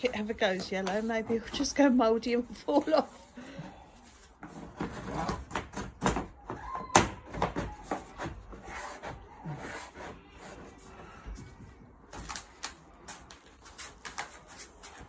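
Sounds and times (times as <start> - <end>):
plastic panels knocking and creaking: 4.7 - 8.5.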